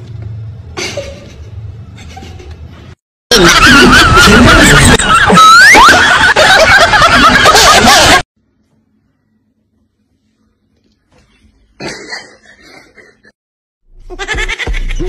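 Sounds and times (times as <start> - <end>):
canned laughter: 3.3 - 8.3, 11.8 - 13.4, 14.1 - 15.0.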